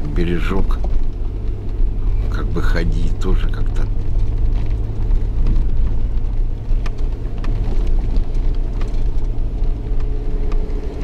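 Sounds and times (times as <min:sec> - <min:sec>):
engine and tyres rumbling: 0:00.0 - 0:11.0
small knocks and rattles: 0:03.8 - 0:11.0.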